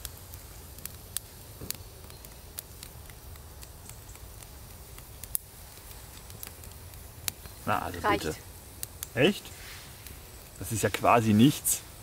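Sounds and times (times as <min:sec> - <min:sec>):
wood fire crackling: 0:00.0 - 0:12.0.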